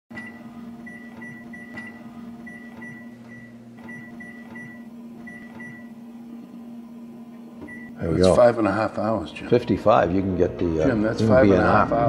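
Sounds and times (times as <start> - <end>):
microwave keypad beeping: 0.1 - 6.0, 7.6 - 8.0.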